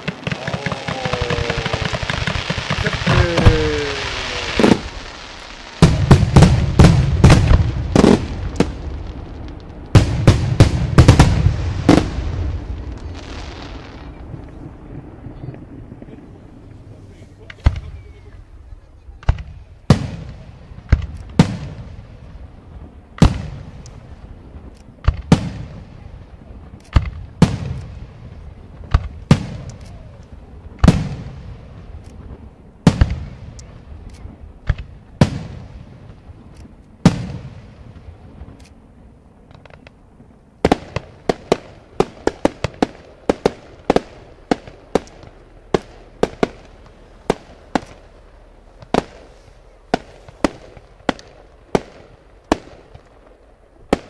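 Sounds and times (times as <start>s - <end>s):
firework shells bursting: 0.0s - 8.8s
sharp firework cracks: 0.0s - 16.8s, 22.8s - 38.8s, 39.4s - 54.0s.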